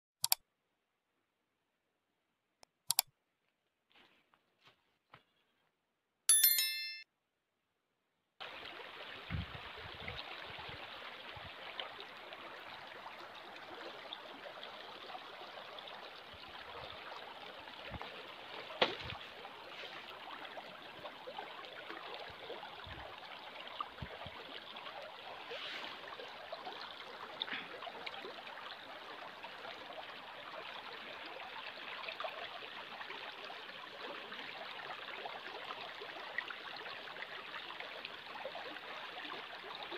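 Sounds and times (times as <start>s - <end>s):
notification bell chime: 6.3s - 7.0s
stream flowing over stones: 8.4s - 39.9s.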